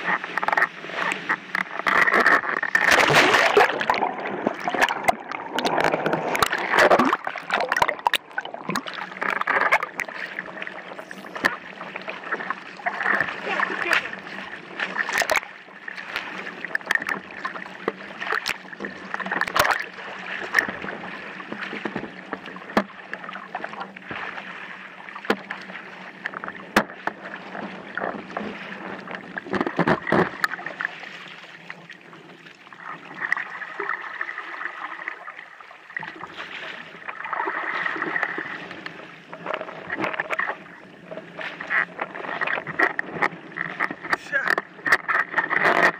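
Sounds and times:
water rushing and splashing: 0.0s - 45.9s.

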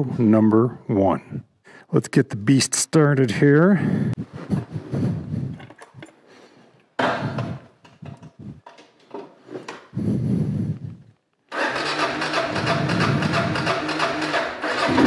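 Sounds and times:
motorcycle starter cranking: 11.5s - 15.0s.

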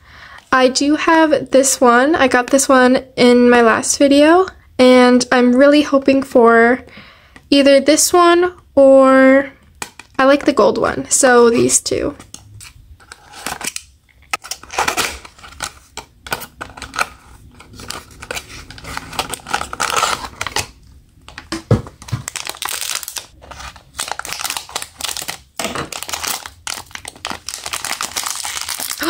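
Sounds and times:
foil bag crinkling and tearing: 16.8s - 29.0s.

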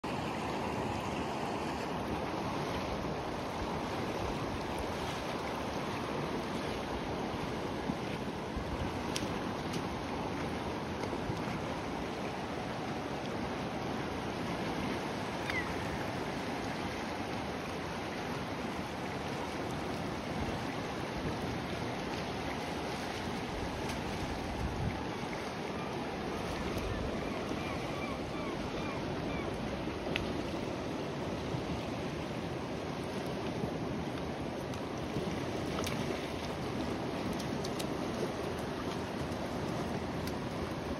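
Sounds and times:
river rushing over rocks: 0.1s - 28.5s.

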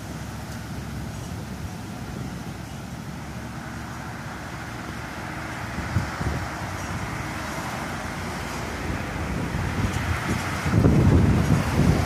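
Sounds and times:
car approaching: 0.0s - 12.0s
street traffic: 0.0s - 12.0s
wind rumbling on microphone: 4.0s - 12.0s.

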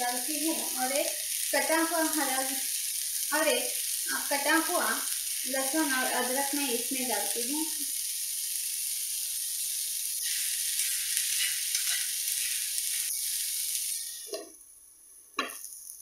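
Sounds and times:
vegetables sizzling in a frying pan: 0.0s - 16.0s
spoon stirring in a pan: 10.2s - 13.2s.

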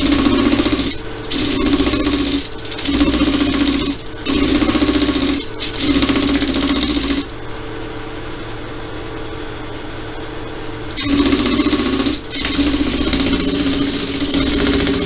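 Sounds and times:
lathe motor whine: 10.9s - 15.0s.

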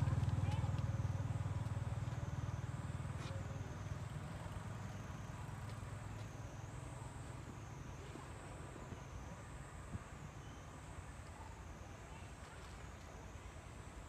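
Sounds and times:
vehicle engine rumbling: 0.0s - 9.9s
faint high whine: 0.0s - 14.0s.

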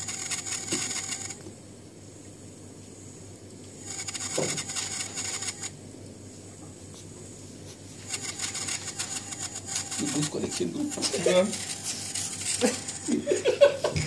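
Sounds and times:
gimbal motors whining: 0.0s - 1.4s, 3.8s - 5.7s, 8.0s - 13.4s.

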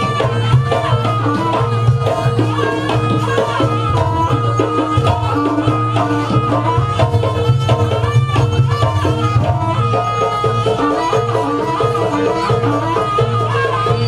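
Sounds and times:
hand drums: 0.0s - 14.0s
high melody: 0.0s - 14.0s.

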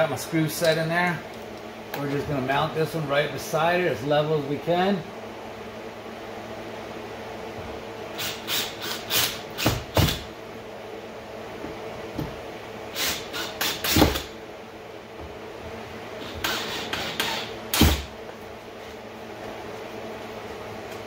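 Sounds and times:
screw gun driving screws: 8.2s - 10.2s, 13.0s - 14.3s, 16.3s - 17.9s.

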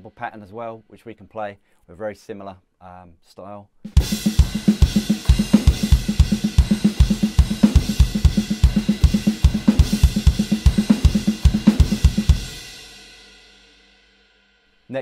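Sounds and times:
snare drum strokes: 3.9s - 12.4s
bass drum hits: 3.9s - 12.7s.

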